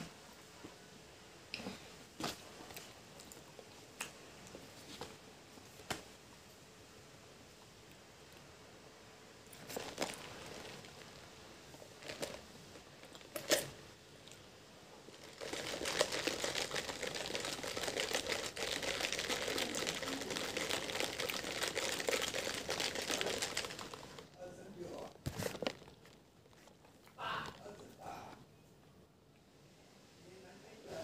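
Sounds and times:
crunching food: 9.5 - 24.4, 25.0 - 27.9
chewing: 15.2 - 24.4, 25.4 - 28.0.

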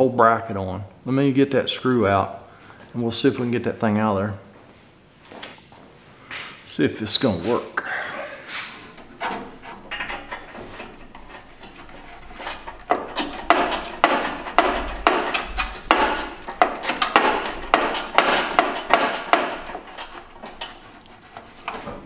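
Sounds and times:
hand tool clattering inside metal cabinet: 8.9 - 22.0.

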